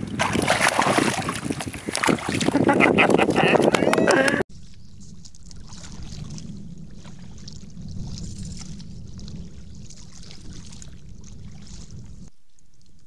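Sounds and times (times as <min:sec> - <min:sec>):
kayak paddle splashing water: 0:00.0 - 0:03.4
steady low rumble: 0:04.3 - 0:13.0.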